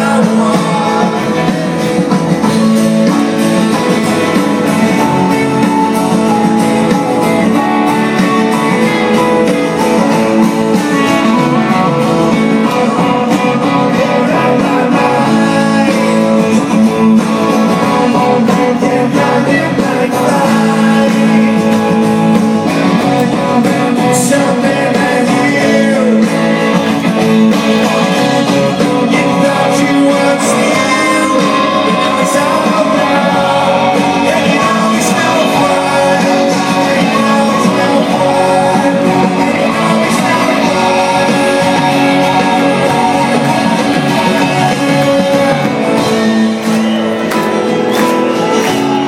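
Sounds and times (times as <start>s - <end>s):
person singing: 0.0s - 49.0s
strummed guitars: 0.0s - 49.0s.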